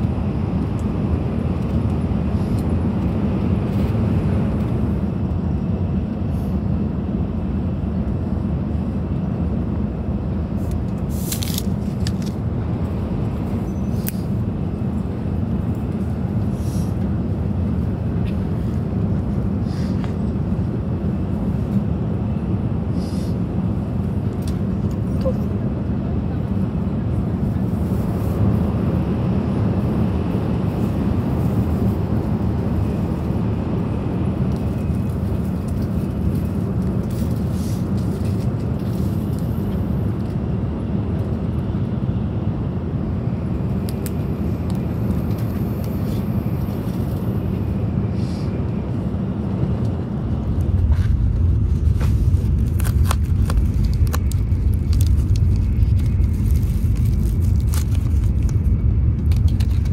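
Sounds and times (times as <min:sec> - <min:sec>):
train low rumble: 0:00.0 - 0:59.9
packet crinkling: 0:52.6 - 0:59.9.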